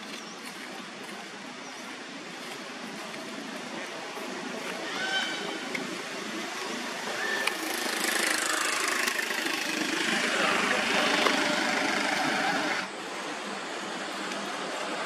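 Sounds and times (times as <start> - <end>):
vehicle engine passing by: 7.5 - 12.9.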